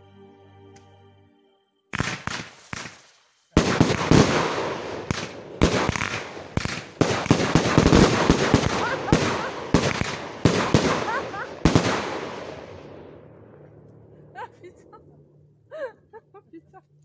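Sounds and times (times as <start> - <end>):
firework crackling and popping: 1.9 - 13.2
firework bangs: 1.9 - 15.0.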